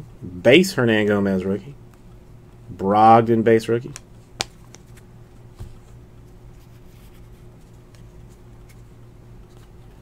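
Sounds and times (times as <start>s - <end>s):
steady low hum: 0.0s - 10.0s
trading cards rustling and clicking: 3.9s - 10.0s.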